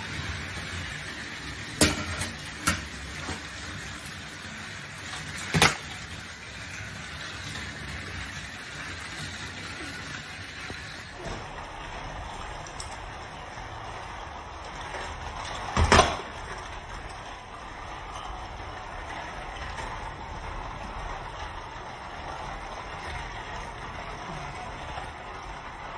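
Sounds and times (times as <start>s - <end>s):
toy train crashing down: 0.0s - 11.6s, 15.5s - 16.6s
toy trains whirring on plastic track: 0.0s - 25.9s.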